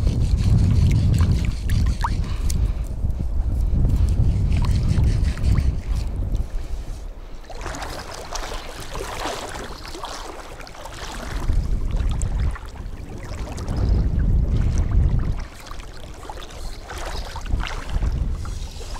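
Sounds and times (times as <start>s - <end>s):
wind rumble on microphone: 0.0s - 18.9s
water splashing around wading legs: 7.4s - 18.9s.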